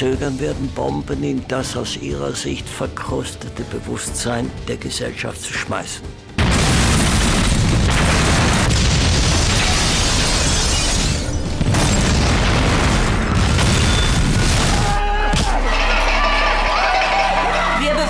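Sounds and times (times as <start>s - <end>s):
bomb blast: 6.4s - 10.2s, 11.5s - 15.5s.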